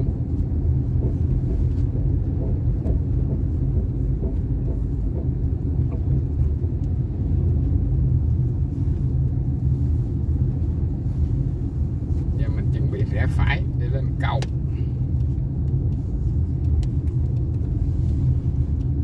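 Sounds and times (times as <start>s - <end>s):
vehicle rumbling on road: 0.0s - 19.0s.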